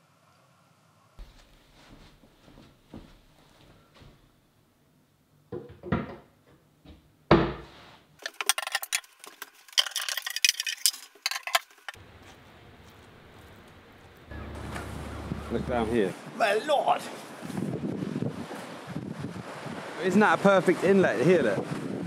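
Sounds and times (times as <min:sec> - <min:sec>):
hard objects clattering: 0:08.2 - 0:12.0.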